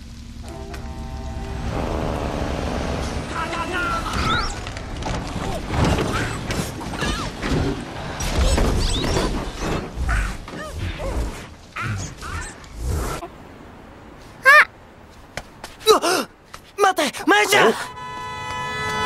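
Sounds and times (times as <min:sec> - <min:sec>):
steady rain: 0:00.0 - 0:19.0
high gliding squeaks: 0:03.0 - 0:04.9, 0:08.1 - 0:11.2.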